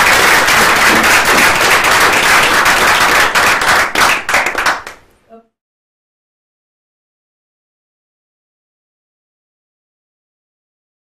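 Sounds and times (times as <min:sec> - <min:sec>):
audience applauding: 0:00.0 - 0:05.0.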